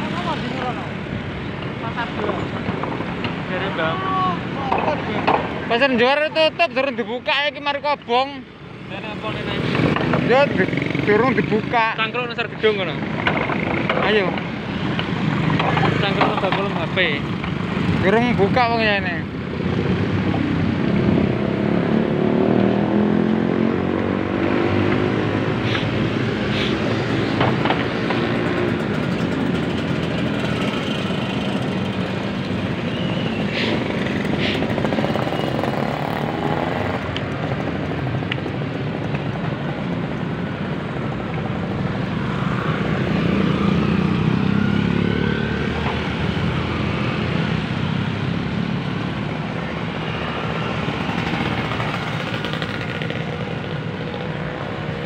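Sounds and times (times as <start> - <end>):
car engines passing: 0.0 - 55.0
motorcycle engine passing: 33.7 - 37.2, 42.4 - 48.8, 50.0 - 54.4.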